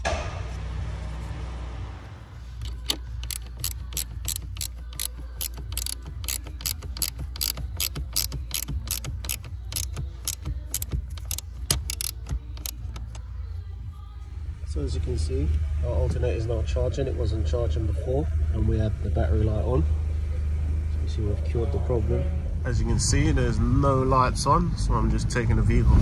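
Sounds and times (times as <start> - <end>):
ratchet spanner clicking: 2.6 - 13.3.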